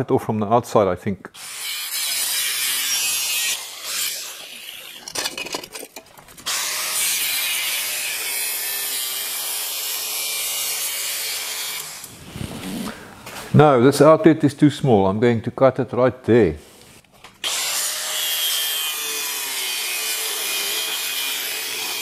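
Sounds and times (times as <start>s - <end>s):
angle grinder cutting steel: 1.4s - 5.6s, 6.4s - 12.3s, 17.4s - 22.0s.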